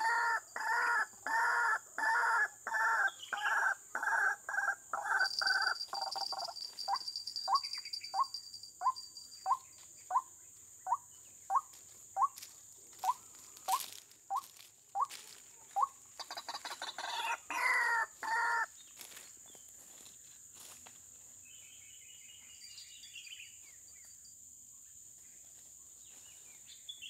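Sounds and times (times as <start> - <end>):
bird harsh croaking calls: 0.0 - 18.8
high insect buzz: 18.2 - 21.3.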